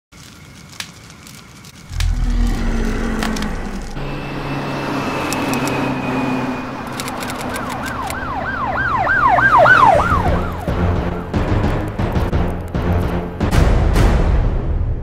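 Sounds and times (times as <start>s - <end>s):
low rumble: 1.8s - 7.6s
fast siren sweeping up and down: 1.9s - 11.0s.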